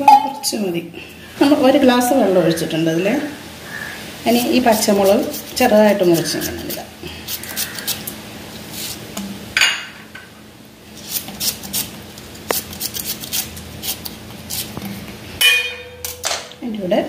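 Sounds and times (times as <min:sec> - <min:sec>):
knife cutting chillies: 0:04.3 - 0:08.1, 0:11.0 - 0:14.8.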